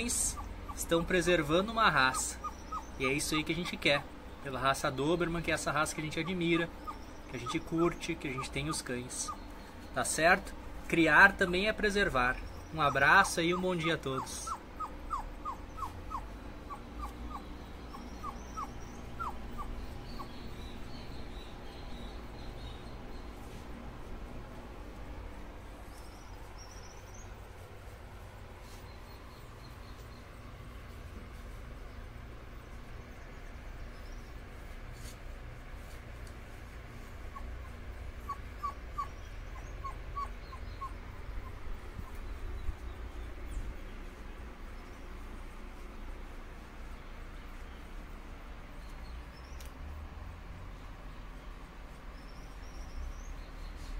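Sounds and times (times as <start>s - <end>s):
puppy whimpering: 0.0s - 3.9s, 5.6s - 9.6s, 12.9s - 20.8s, 37.2s - 42.3s
steady low rumble: 0.0s - 53.7s
low steady hum: 0.0s - 53.9s.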